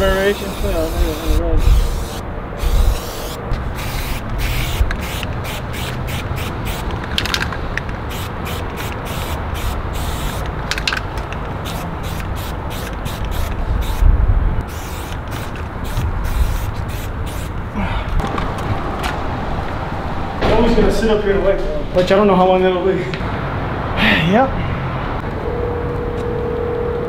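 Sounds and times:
spray-paint can hissing: 0.1s - 6.9s, 8.1s - 10.5s, 11.6s - 14.0s, 14.7s - 17.6s.

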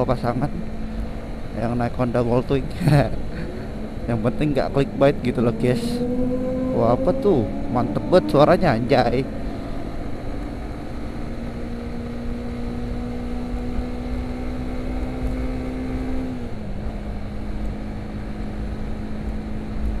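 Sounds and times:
motorcycle engine cruising: 0.0s - 20.0s
wind rumble on microphone: 0.0s - 20.0s.

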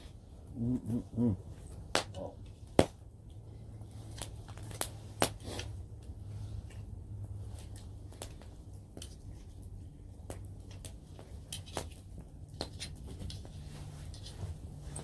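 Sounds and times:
wood fire crackling and popping: 0.0s - 15.0s
person murmuring: 0.5s - 2.4s.

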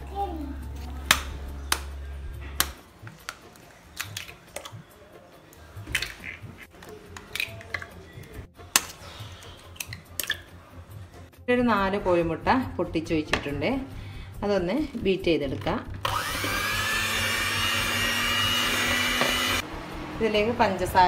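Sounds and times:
eggs cracking into plastic bowl: 2.6s - 4.8s, 5.9s - 8.0s, 9.7s - 10.5s.

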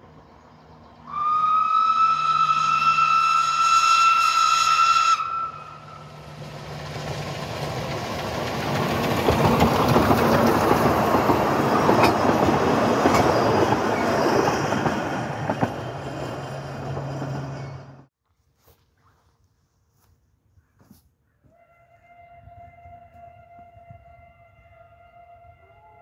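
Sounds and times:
steam train running past: 0.0s - 18.1s
steam locomotive whistle: 1.1s - 6.2s, 21.5s - 26.0s
wheels clicking over rail joints: 6.4s - 18.0s.

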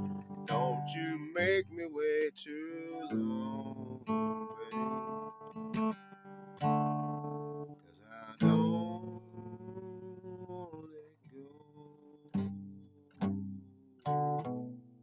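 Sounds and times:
acoustic guitar chords ringing: 0.0s - 10.6s.

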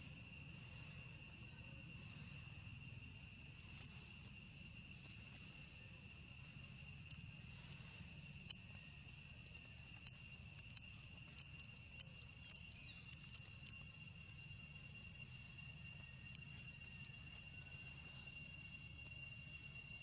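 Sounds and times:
insects shrilling: 0.0s - 20.0s
soft ticks: 6.6s - 18.5s.

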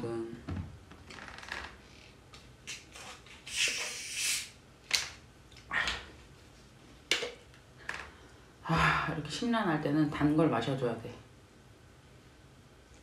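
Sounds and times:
carbonated gas hissing: 2.7s - 4.6s.

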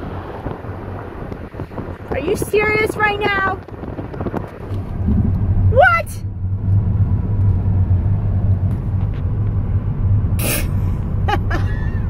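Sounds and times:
car interior road noise: 0.0s - 12.0s
short hiss: 10.4s - 10.8s.

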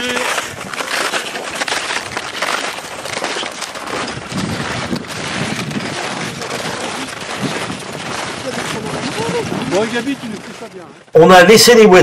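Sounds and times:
wind on microphone: 3.0s - 11.0s.

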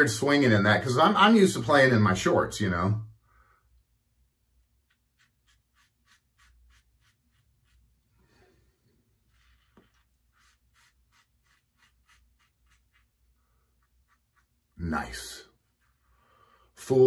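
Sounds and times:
razor scratching through whiskers: 4.8s - 8.0s, 9.3s - 14.8s.

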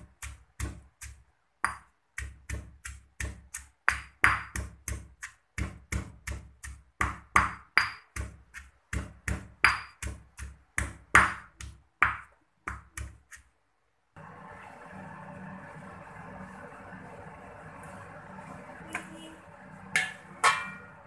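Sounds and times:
pestle pounding in stone mortar: 0.0s - 13.5s.

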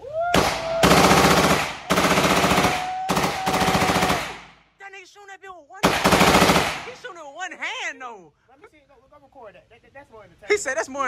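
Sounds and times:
automatic gunfire bursts: 0.4s - 4.5s, 5.8s - 7.1s.

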